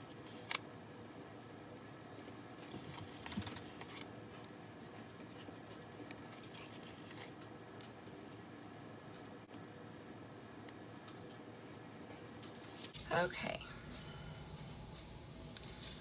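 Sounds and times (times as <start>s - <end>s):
sticker sheet rustling: 4.8s - 7.9s.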